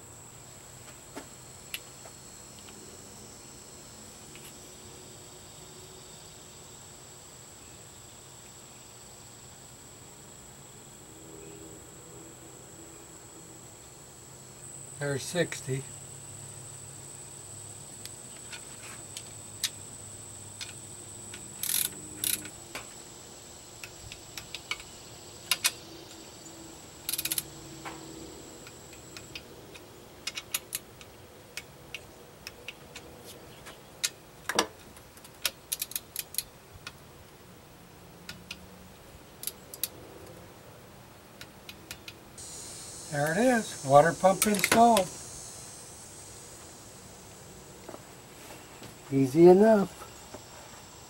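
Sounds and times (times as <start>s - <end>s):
ratcheting torque wrench clicking: 20.6s - 22.6s, 27.0s - 27.5s, 28.6s - 32.8s, 35.2s - 36.5s, 39.4s - 39.9s.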